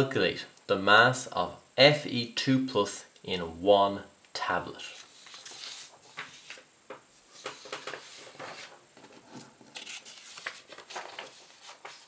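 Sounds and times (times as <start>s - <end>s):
paper rustling: 4.9s - 6.7s, 7.3s - 12.0s.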